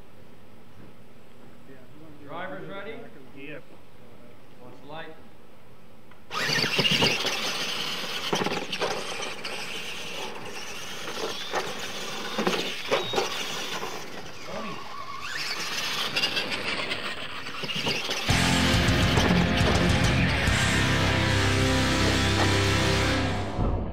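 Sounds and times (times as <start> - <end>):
tyres scrabbling through dirt: 6.3 - 20.5
toy truck motors whining: 6.3 - 23.6.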